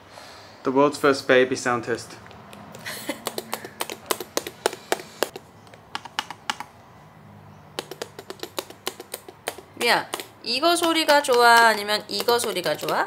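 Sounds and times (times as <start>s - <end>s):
keyboard keys clacking: 2.5s - 6.8s, 7.6s - 13.0s.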